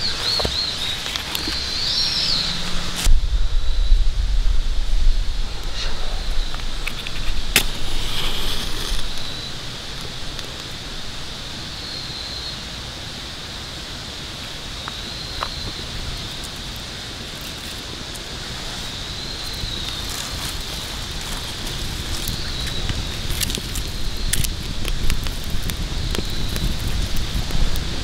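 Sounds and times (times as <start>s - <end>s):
twigs crackling: 0.0s - 3.1s, 6.2s - 11.3s, 14.8s - 28.0s
outdoor hiss: 0.0s - 28.0s
match striking and flaring: 6.4s - 10.7s, 19.9s - 27.8s.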